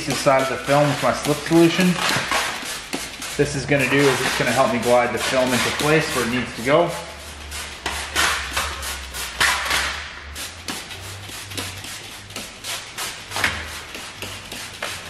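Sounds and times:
spray bottle hissing spurts: 10.2s - 15.0s.

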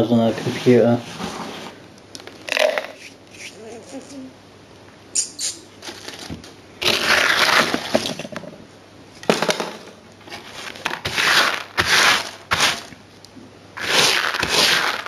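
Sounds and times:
gritty crunching and scraping on sand: 6.8s - 7.9s, 10.4s - 12.9s, 13.8s - 15.0s.

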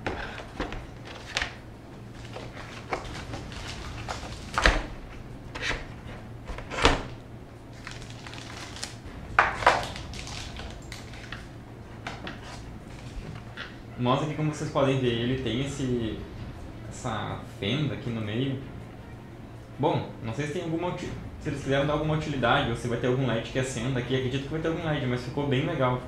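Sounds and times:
paper and plastic bag rustling: 0.2s - 4.9s, 7.7s - 11.5s.

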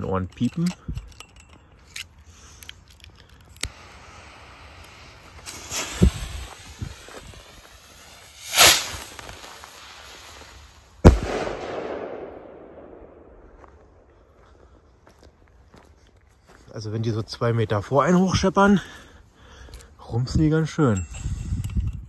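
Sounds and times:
firework fuse hissing: 3.4s - 11.6s
rocket whoosh: 5.4s - 13.5s
firework bang echoing: 8.4s - 10.2s, 11.0s - 13.6s.

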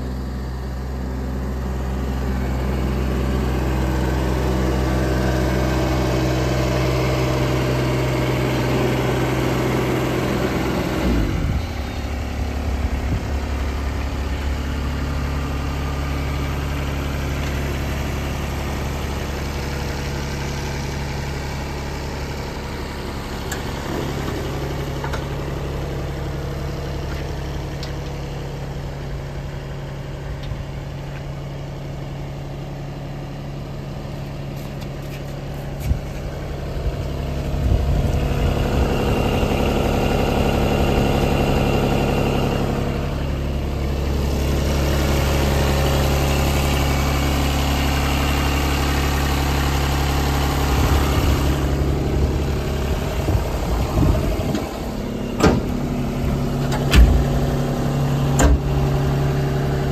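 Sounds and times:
diesel engine idling: 0.0s - 59.9s.

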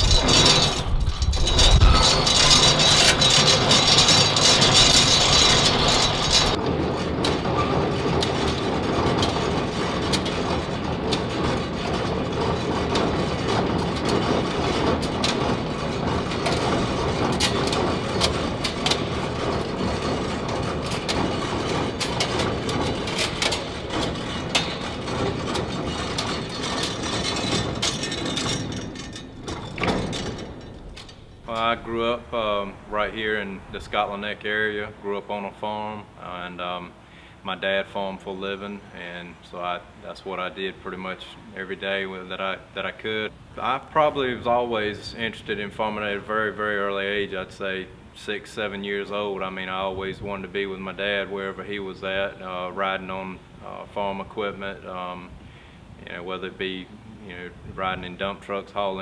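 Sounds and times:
chain clattering over hoist: 0.0s - 33.4s
door slats rattling: 0.0s - 34.1s.

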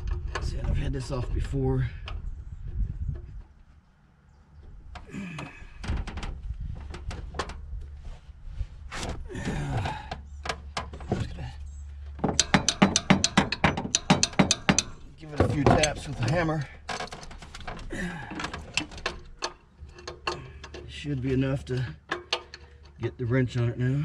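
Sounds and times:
hand tools clinking on metal: 12.2s - 23.0s.

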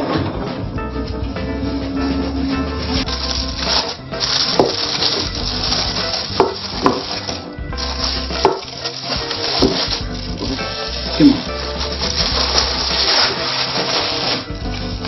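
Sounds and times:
background music: 0.0s - 15.0s
aluminium foil crinkling: 3.0s - 15.0s.

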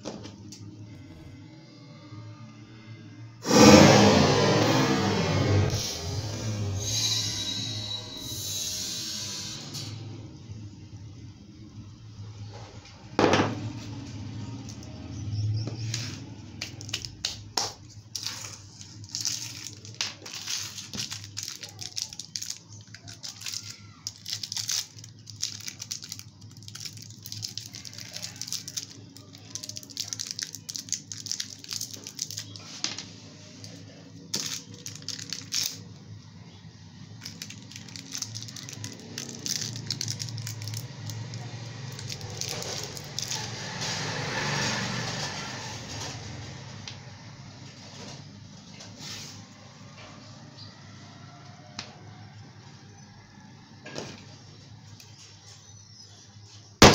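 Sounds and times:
plastic wrapper crinkling: 16.0s - 33.0s, 33.6s - 36.0s, 37.2s - 43.8s.

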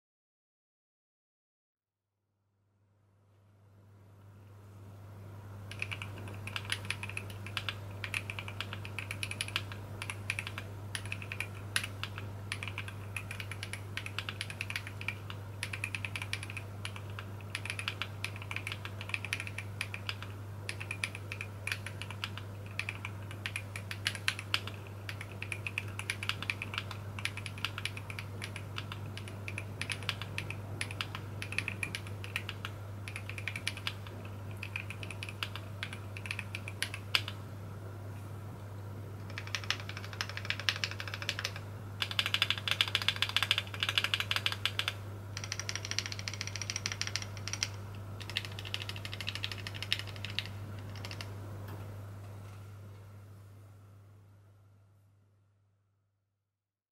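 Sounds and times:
mechanical keyboard typing: 5.7s - 37.4s, 39.2s - 51.3s.

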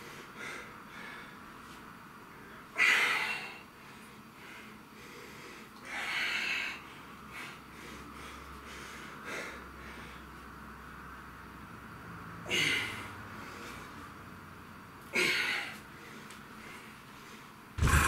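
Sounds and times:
man exhaling forcefully: 17.8s - 18.0s.

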